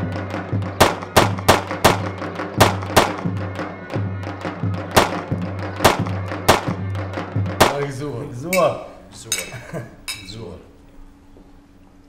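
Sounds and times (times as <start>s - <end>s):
drum struck in uneven rhythm: 0.0s - 8.0s.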